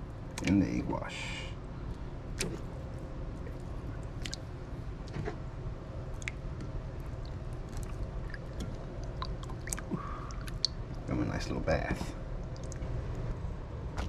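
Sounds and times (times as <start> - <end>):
low steady hum: 0.0 - 14.0
wet squishing: 1.9 - 5.2, 6.1 - 11.2, 12.3 - 14.0.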